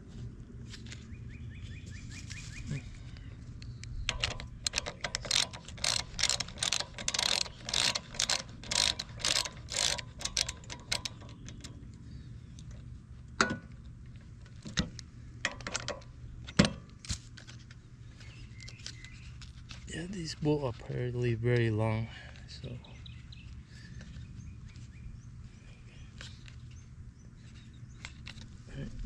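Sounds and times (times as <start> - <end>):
socket ratchet clicking: 3.8 - 12.0.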